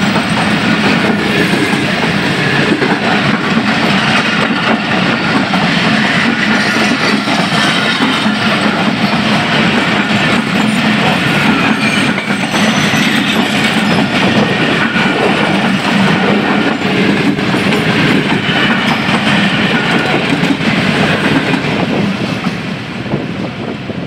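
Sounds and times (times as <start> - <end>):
train wheels clattering over rail joints: 0.0 - 22.6.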